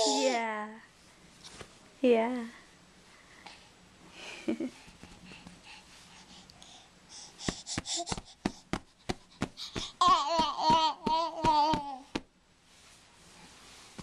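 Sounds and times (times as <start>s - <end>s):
baby's voice: 0.0s - 0.5s, 10.0s - 12.1s
baby gasping: 6.6s - 12.0s
hand slapping cushion: 7.5s - 12.3s.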